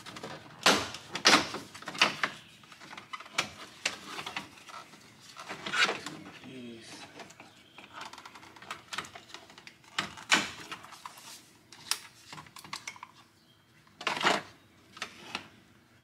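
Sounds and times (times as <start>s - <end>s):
scraping rustles: 0.0s - 13.3s.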